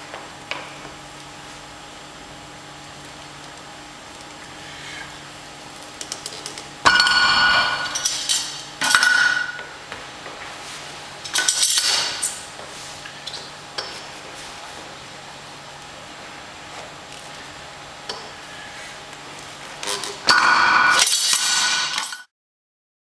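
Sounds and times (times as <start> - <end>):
metal weight plates clanking: 6.9 - 9.6.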